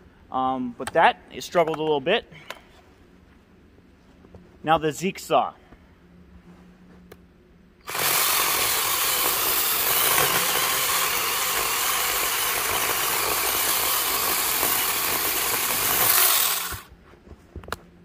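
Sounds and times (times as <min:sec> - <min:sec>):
chainsaw cutting wood: 0:07.8 - 0:16.9.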